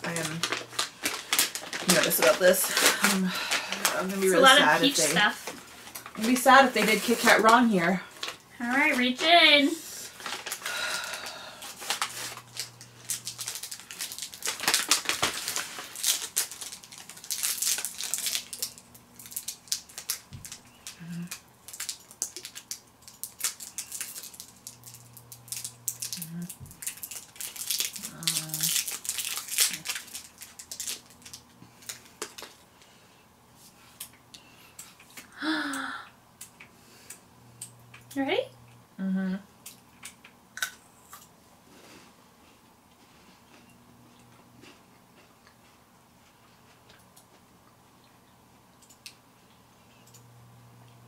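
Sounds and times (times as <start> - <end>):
snack packaging crinkling: 0.0 - 9.4, 10.0 - 33.0.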